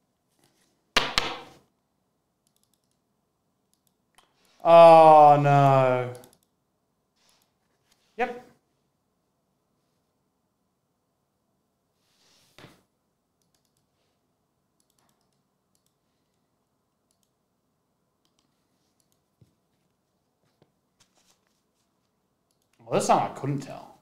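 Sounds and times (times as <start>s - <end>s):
soft rustle: 11.9s - 12.6s, 18.5s - 22.2s.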